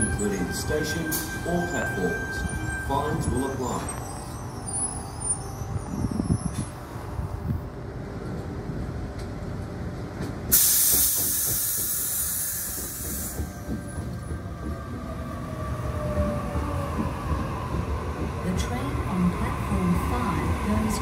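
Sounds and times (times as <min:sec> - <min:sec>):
train rumbling: 0:00.0 - 0:21.0
compressed air hiss: 0:10.5 - 0:13.4.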